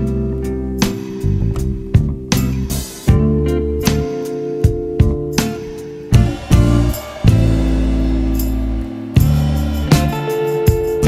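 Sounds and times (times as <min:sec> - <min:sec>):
sustained pitched notes: 0:04.9 - 0:10.5
sharp percussive hits: 0:05.0 - 0:11.0.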